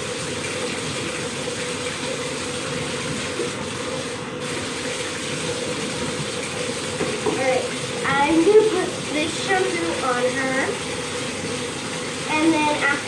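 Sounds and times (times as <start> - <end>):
water running into bathtub: 0.0 - 13.0.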